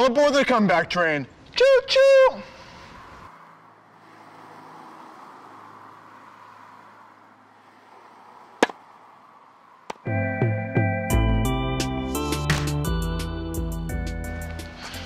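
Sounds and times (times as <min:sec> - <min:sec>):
tennis racket hitting ball: 0:08.6 - 0:08.8.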